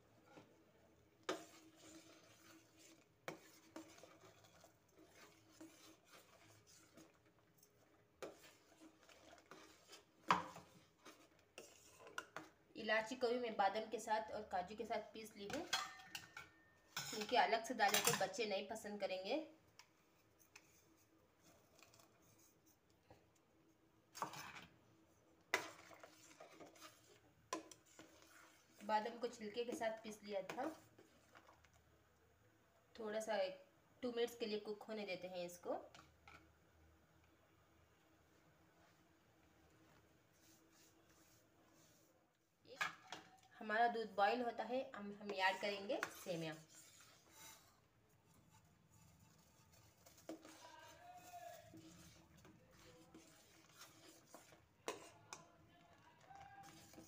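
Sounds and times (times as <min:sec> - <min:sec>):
spoon scraping: 0:01.2 - 0:12.5, 0:15.4 - 0:18.4, 0:25.5 - 0:29.8, 0:45.2 - 0:57.0
metal spoon clinking on pot: 0:15.6 - 0:17.3.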